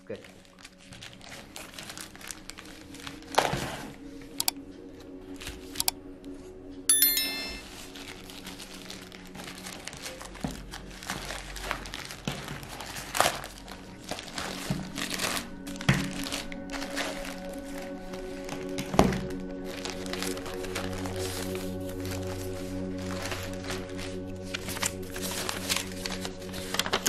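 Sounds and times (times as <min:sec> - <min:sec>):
soft background music: 0:00.0 - 0:27.0
plastic bag crinkling and tearing: 0:00.2 - 0:03.0, 0:08.9 - 0:17.8
chime sound effect: 0:06.9 - 0:07.8.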